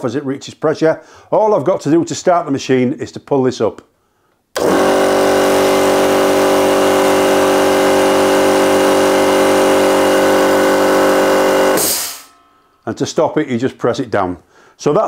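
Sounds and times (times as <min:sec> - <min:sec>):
air compressor running: 0:04.6 - 0:12.4.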